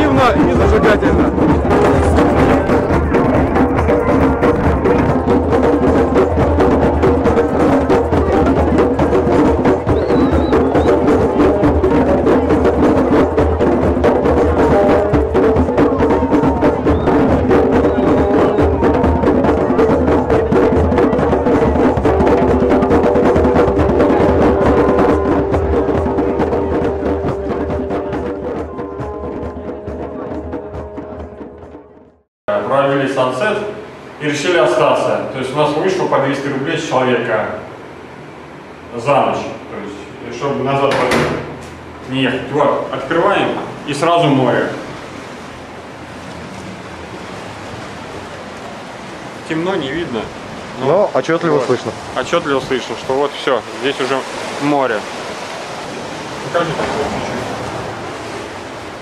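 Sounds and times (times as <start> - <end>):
held note: 0.0 - 32.2
drum circle playing: 0.0 - 32.3, 48.7 - 59.0.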